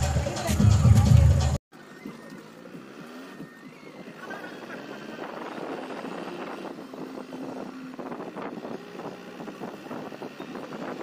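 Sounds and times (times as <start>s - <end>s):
wind noise: 2.1s - 11.0s
car engine running: 2.4s - 11.0s.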